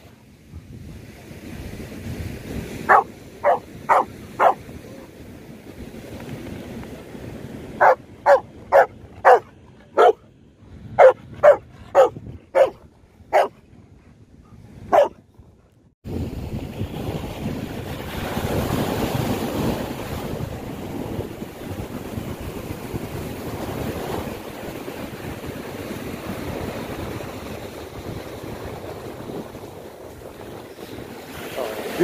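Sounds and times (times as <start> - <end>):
wind on microphone: 0.0 - 32.0
dog barking: 2.9 - 4.6, 7.8 - 10.2, 11.0 - 13.6, 14.9 - 15.2
surf breaking on shore: 16.1 - 32.0.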